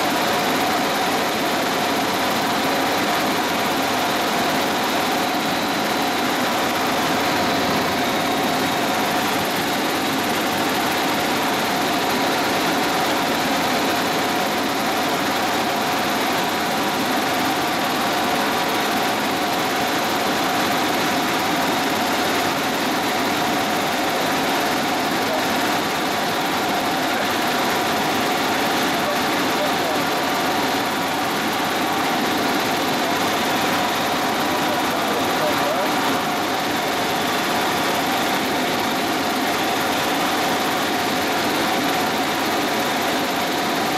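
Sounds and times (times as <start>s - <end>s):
helicopter engine and rotor drone: 0.0s - 43.9s.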